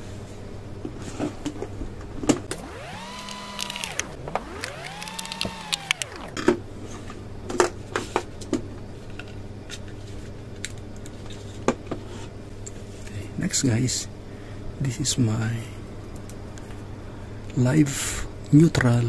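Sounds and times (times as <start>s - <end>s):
plastic connectors clicking: 2.5s - 6.5s
low hum: 2.5s - 6.6s
whirring tones: 2.5s - 6.6s.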